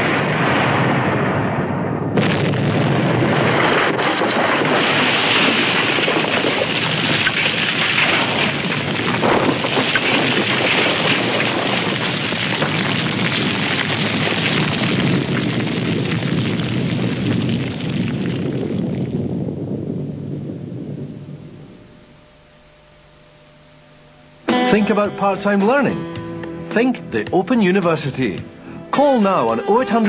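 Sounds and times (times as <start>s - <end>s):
volcanic eruption roaring and crackling: 0.0s - 21.8s.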